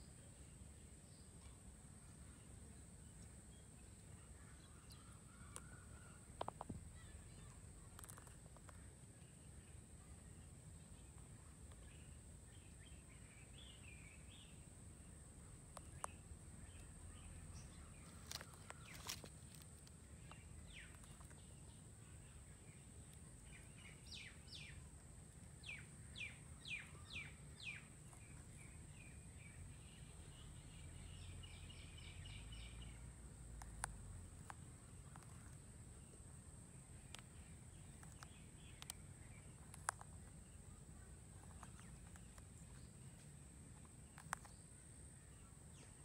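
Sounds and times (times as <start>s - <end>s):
bird chirping: 0.0s - 46.0s.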